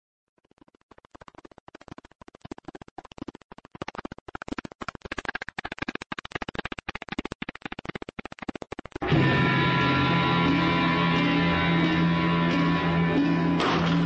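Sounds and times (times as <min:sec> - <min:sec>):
rapid irregular clicking and crackling: 0:00.3 - 0:09.0.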